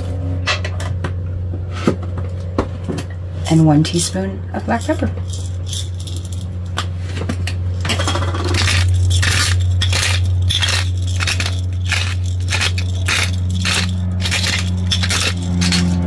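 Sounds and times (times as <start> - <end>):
low hum: 0.0 - 16.0
pepper mill grinding: 4.6 - 6.8, 7.8 - 16.0.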